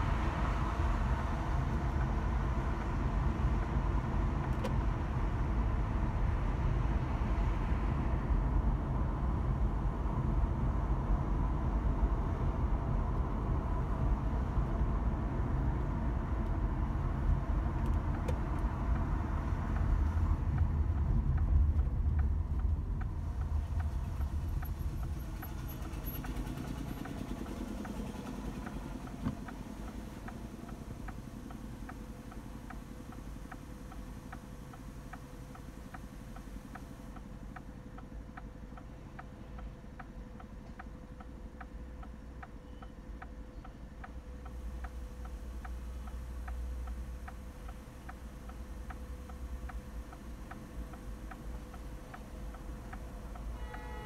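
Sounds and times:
turn signal ticking: 0.0 - 5.2, 12.4 - 54.0
car road and engine rumble: 0.0 - 54.0.

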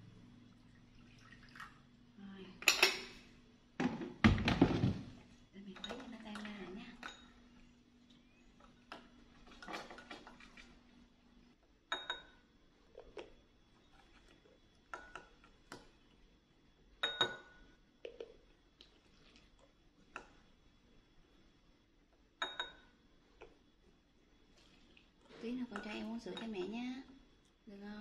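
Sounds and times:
metal spoon clinking porcelain bowl: 2.6 - 3.2, 5.8 - 7.4, 11.9 - 12.4, 17.0 - 17.6, 22.4 - 22.9, 25.7 - 26.7.

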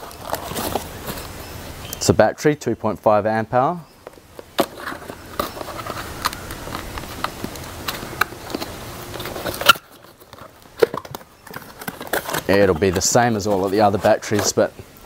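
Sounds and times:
cardboard box rustling and scraping: 0.0 - 1.5, 4.3 - 14.8.

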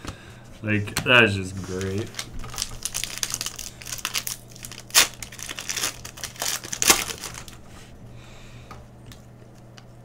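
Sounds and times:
foil wrapper crinkling: 1.6 - 7.6
sharp foil crackles: 1.7 - 7.6.

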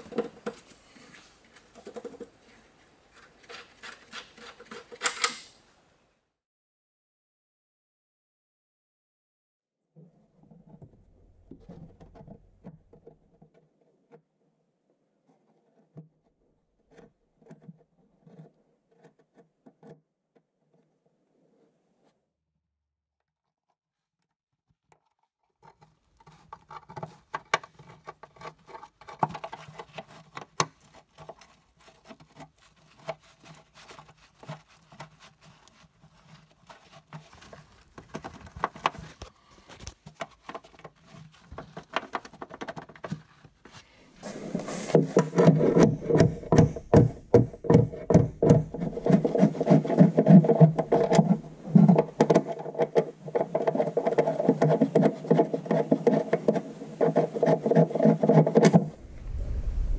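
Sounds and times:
steady hum: 59.0 - 59.9.

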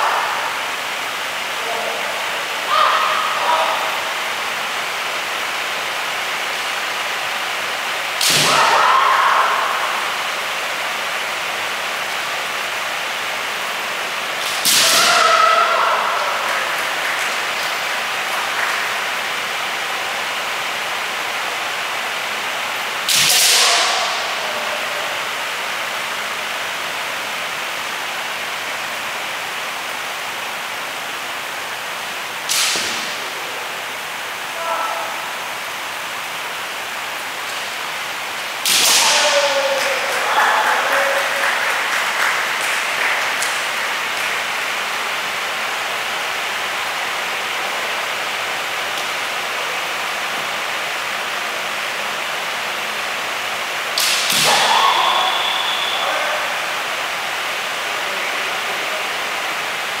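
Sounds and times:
background hiss: 0.0 - 60.0
person shouting: 2.6 - 4.0, 8.4 - 10.0, 14.8 - 16.4, 34.6 - 35.2.

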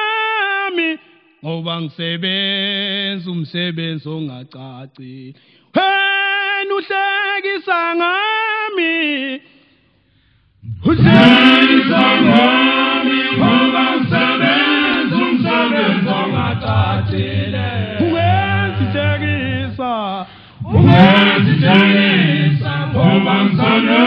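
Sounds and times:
male choir singing in harmony: 10.8 - 24.0
low bass note: 16.3 - 20.0.

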